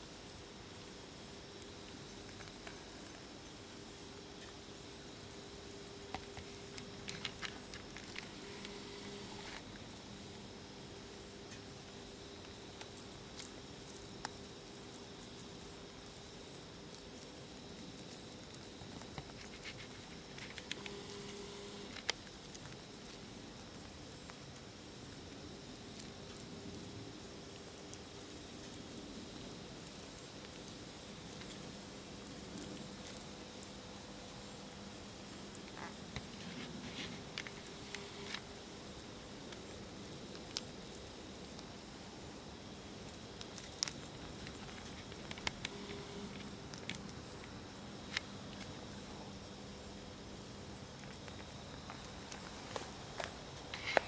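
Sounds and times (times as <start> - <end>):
insect chirping: 0.0 - 54.0
steady high hiss: 0.0 - 54.0
light clicks and scratches: 6.1 - 9.8, 18.5 - 24.4, 35.5 - 38.5, 43.4 - 49.0, 51.0 - 54.0.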